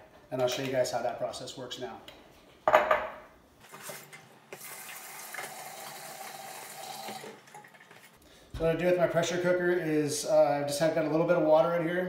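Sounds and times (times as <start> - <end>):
water running from tap: 4.0 - 8.1.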